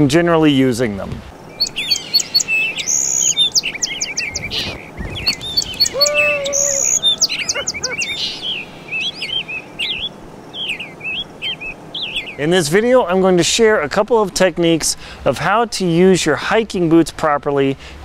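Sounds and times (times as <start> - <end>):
songbirds chirping and singing: 1.4 - 12.6.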